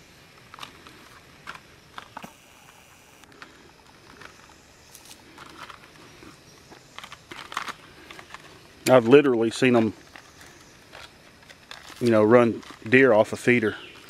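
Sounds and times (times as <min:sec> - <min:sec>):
batteries clicking and rattling: 0:03.2 - 0:14.0.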